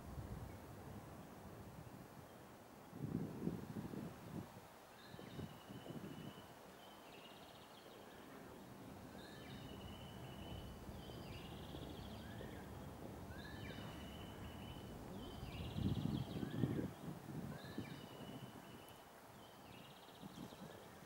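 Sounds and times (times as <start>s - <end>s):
songbird singing through speakers: 9.1s - 20.8s.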